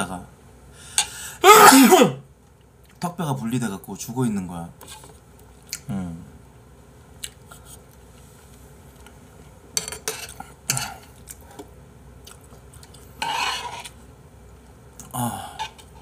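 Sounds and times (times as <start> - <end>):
chewing: 11.1 - 13.2
metal fork scraping ceramic dish: 13.2 - 13.9.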